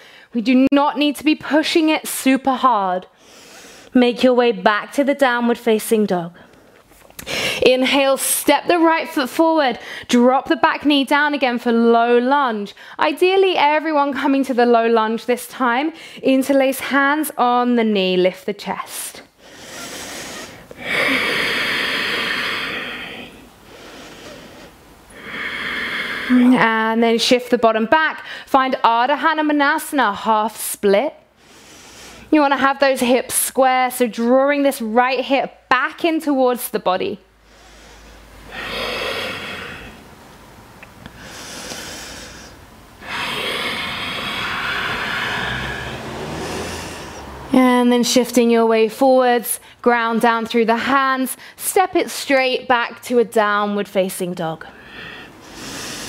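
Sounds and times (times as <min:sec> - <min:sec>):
woman breathing: 0:03.1 - 0:03.9, 0:06.4 - 0:07.6, 0:09.8 - 0:10.1, 0:19.3 - 0:26.7, 0:28.2 - 0:28.5, 0:31.3 - 0:32.3, 0:37.4 - 0:40.1, 0:41.0 - 0:47.5, 0:54.7 - 0:56.0.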